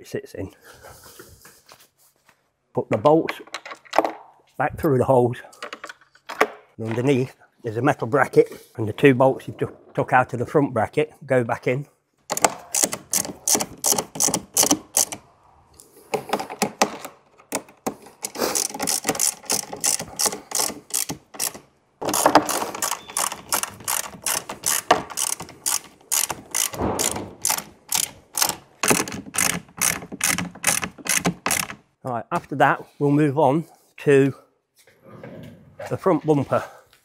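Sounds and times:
hand ratchet clicking rapidly: 12.3s - 15.2s, 18.2s - 31.8s.

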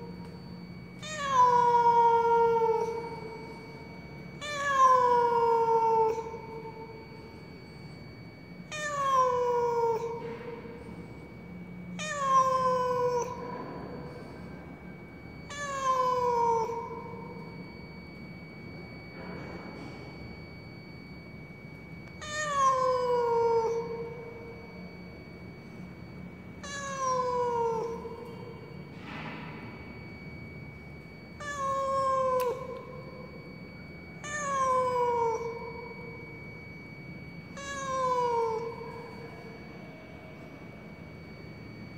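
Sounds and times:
cat meowing: 1.0s - 7.4s, 8.7s - 10.8s, 11.9s - 14.6s, 15.5s - 17.5s, 22.2s - 24.6s, 26.6s - 28.7s, 31.4s - 33.2s, 34.2s - 36.2s, 37.5s - 39.3s.

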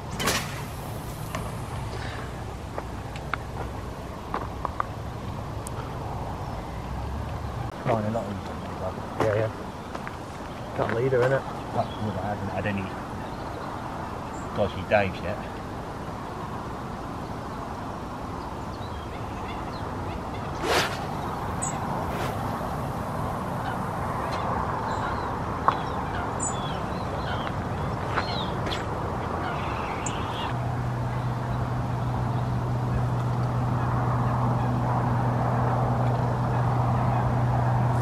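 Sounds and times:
low steady drone: 0.0s - 4.4s, 20.3s - 25.5s
water birds calling: 18.8s - 31.3s
fishing rod swishing: 20.6s - 24.1s.

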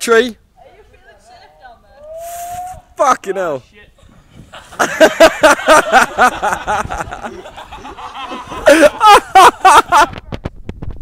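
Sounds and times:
loud hearty laughter: 4.4s - 10.2s.

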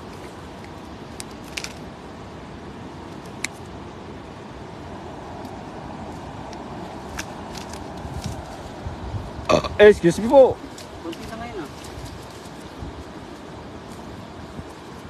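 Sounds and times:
cast net clicks: 0.6s - 1.9s.

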